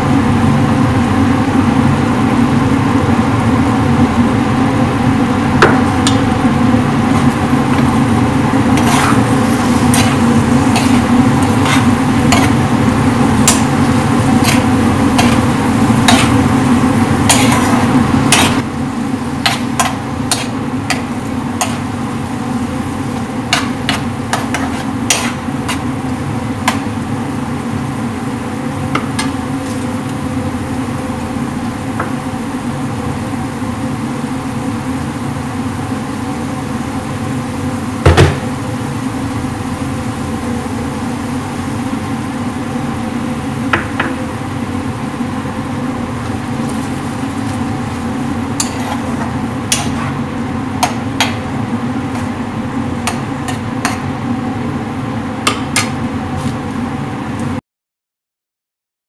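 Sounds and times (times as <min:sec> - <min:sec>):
machine hum: 0:00.0 - 0:57.4
utensil knocking metal wok: 0:08.7 - 0:18.7, 0:19.4 - 0:21.9, 0:23.4 - 0:25.9, 0:26.6 - 0:26.9, 0:48.6 - 0:50.2, 0:50.8 - 0:51.5, 0:53.0 - 0:54.1, 0:55.4 - 0:56.0.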